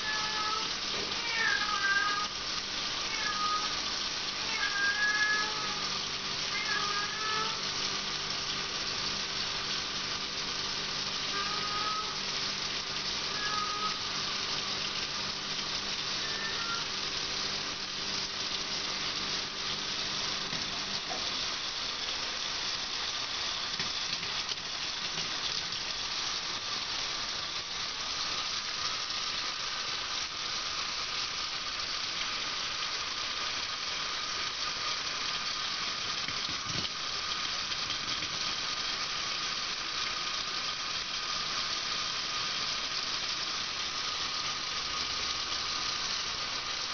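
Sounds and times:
tap water splashing into sink: 0:23.8 - 0:25.5.

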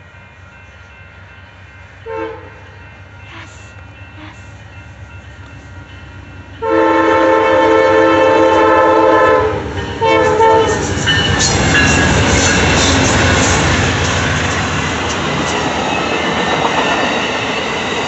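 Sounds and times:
diesel locomotives passing: 0:00.0 - 0:18.0
train wheel and rail noise: 0:00.0 - 0:18.0
train horn: 0:02.0 - 0:02.7, 0:03.3 - 0:04.5, 0:06.6 - 0:10.9.

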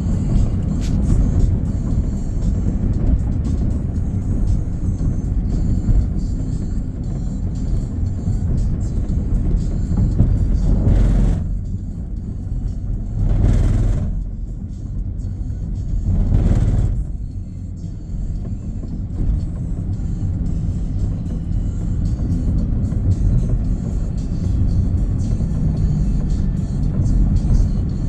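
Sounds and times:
car road and engine rumble: 0:00.0 - 0:28.0
music: 0:00.0 - 0:28.0.

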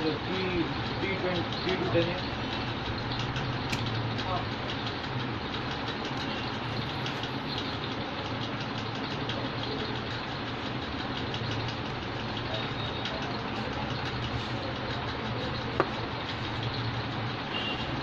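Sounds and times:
sharp click: 0:03.3 - 0:04.0.

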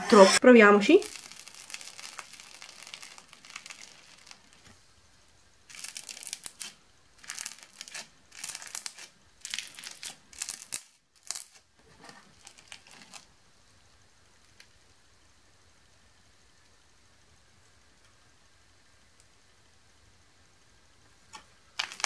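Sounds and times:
slime crackling and squelching: 0:00.9 - 0:04.7, 0:05.6 - 0:13.3, 0:21.8 - 0:22.0.

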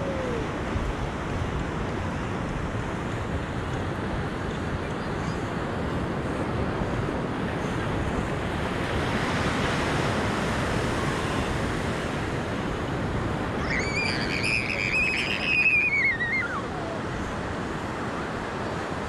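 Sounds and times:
ocean surf on beach: 0:00.0 - 0:19.0
wind on microphone: 0:00.0 - 0:19.0
high wavering cry: 0:13.6 - 0:17.2.

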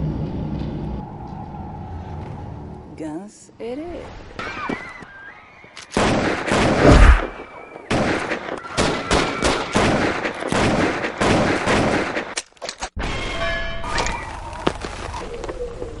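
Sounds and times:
dense gunfire: 0:06.0 - 0:12.4
deep loud blast: 0:06.8 - 0:07.4.

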